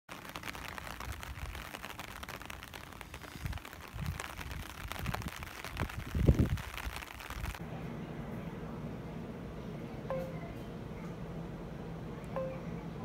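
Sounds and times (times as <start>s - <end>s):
steady crackling hiss: 0.1s - 7.8s
footsteps on wet pavement: 0.2s - 7.5s.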